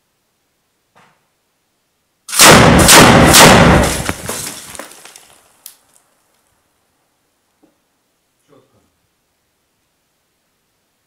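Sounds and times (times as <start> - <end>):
machine gun burst echoing indoors: 2.3 - 4.3.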